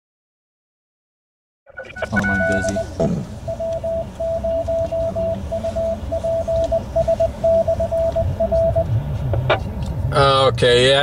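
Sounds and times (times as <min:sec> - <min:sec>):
morse code beeps over radio: 0:01.7 - 0:08.9.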